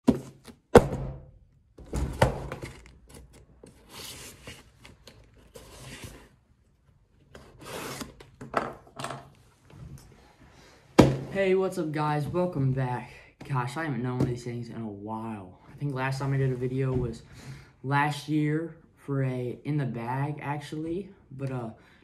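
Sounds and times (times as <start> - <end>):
knife scraping along cardboard: 7.4 - 8.2.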